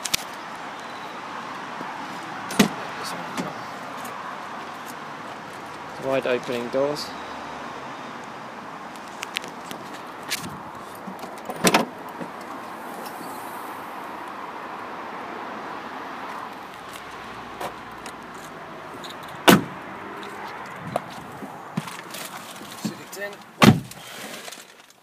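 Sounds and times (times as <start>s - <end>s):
outdoor background noise: 0.0s - 25.0s
car door slam: 2.5s - 2.8s, 11.5s - 12.3s, 19.4s - 19.8s, 23.6s - 24.0s
latch clunk: 11.1s - 12.3s.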